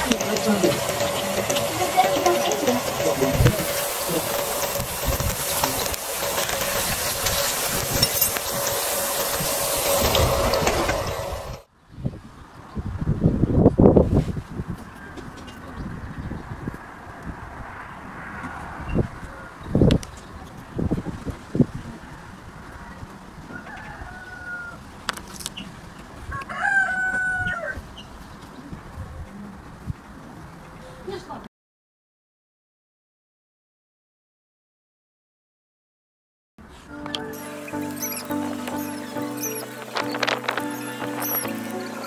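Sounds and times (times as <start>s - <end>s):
steady hissing noise: 0.0s - 11.7s, 36.6s - 42.0s
rooster crowing: 23.5s - 24.9s, 26.3s - 27.8s.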